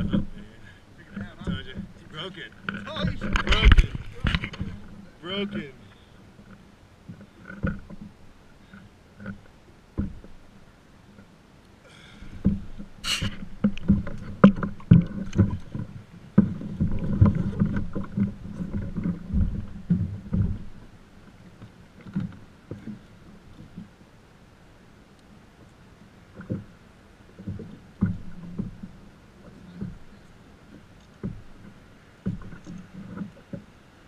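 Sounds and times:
water splashing: 0.0s - 24.0s
knocks against a kayak hull: 1.2s - 2.0s, 2.6s - 5.0s, 12.3s - 20.8s, 31.2s - 33.6s.

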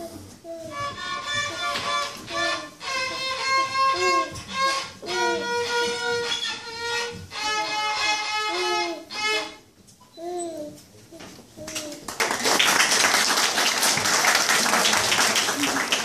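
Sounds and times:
fiddle playing a simple tune: 0.5s - 9.7s.

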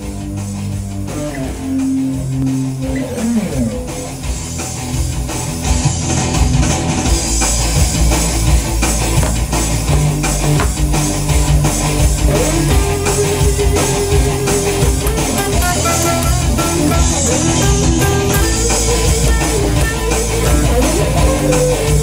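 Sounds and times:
rock backing track with drums: 0.0s - 22.0s
electric guitar scale runs: 13.4s - 22.0s.

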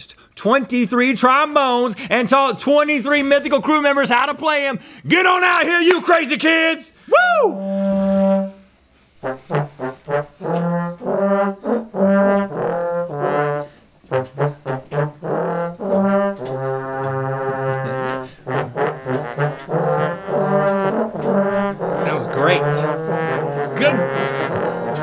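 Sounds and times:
trombone ensemble playing: 7.6s - 25.0s.

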